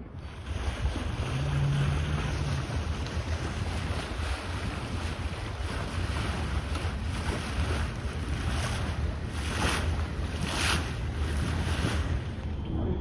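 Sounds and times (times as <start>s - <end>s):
water rushing along hull: 0.0s - 13.0s
wind buffeting microphone: 0.0s - 13.0s.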